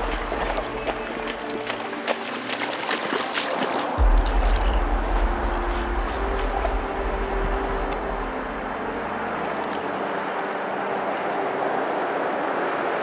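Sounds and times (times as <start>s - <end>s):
waders sloshing through water: 0.0s - 11.4s
heavy low thump: 4.0s - 8.9s.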